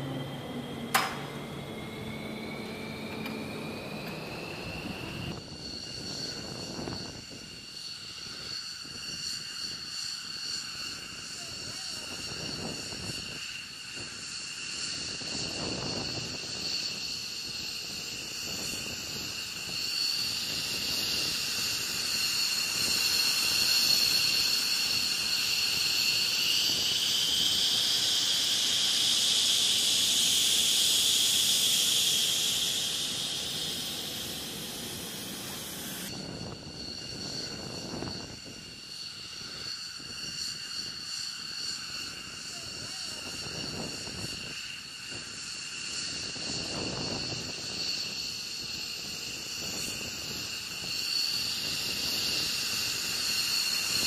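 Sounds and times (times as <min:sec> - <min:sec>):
high-pitched whine: 0:00.0 - 0:54.0
oxygen venting hiss: 0:36.8 - 0:54.0.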